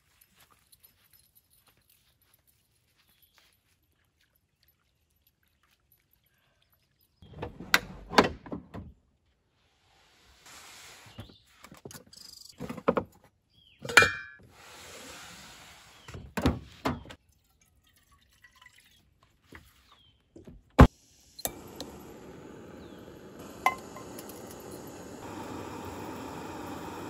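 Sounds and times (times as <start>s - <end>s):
pot clink: 13.9s - 14.4s, 23.6s - 24.6s
camp stove hissing: 14.5s - 16.1s, 20.8s - 27.0s.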